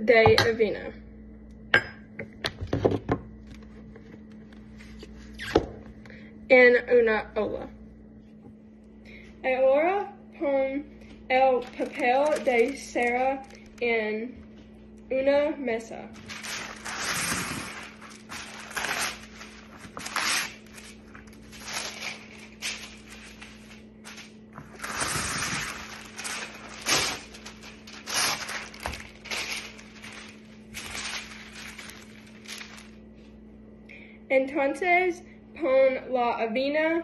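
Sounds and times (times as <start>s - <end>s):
wax paper crinkling: 11.0s - 14.8s, 16.1s - 33.4s.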